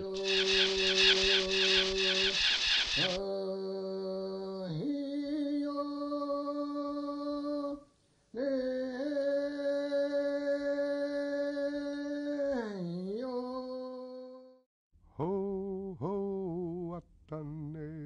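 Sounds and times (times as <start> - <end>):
voice chanting long notes: 0.0 - 3.2.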